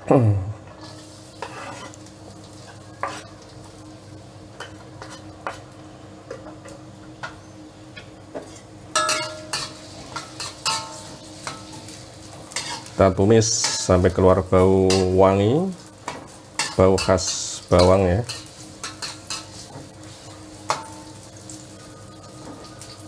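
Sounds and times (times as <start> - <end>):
garlic sizzling in oil: 0.7 - 7.2, 8.4 - 23.0
knife scraping cutting board: 1.4 - 2.0
metal utensils clattering: 9.0 - 11.7.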